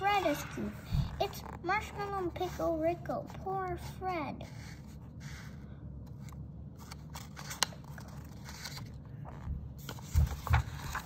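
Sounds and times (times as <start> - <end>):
paper pages rustling: 4.9 - 11.0.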